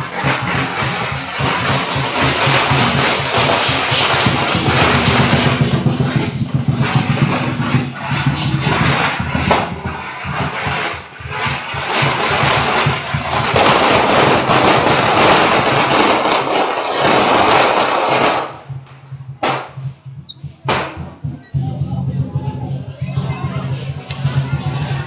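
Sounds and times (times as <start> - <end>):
firecrackers crackling: 0.0 - 21.4
loud bangs: 0.0 - 21.4.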